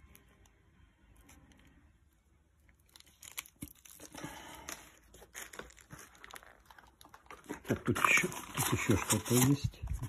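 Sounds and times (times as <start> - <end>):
plastic bags crinkling: 2.8 - 9.7.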